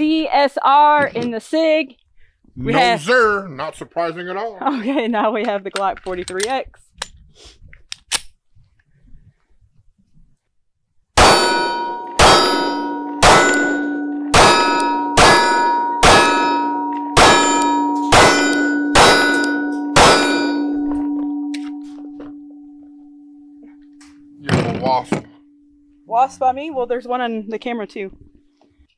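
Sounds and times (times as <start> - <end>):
gunshots: 11.2 - 16.6
steel target ringing: 11.2 - 27.0.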